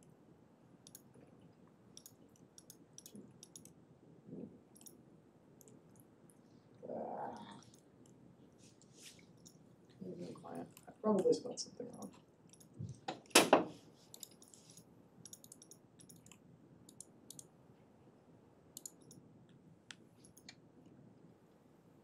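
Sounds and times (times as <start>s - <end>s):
keyboard and mouse clicks: 0.8s - 1.1s, 2.0s - 3.8s, 4.7s - 5.0s, 11.9s - 17.5s, 18.8s - 20.6s.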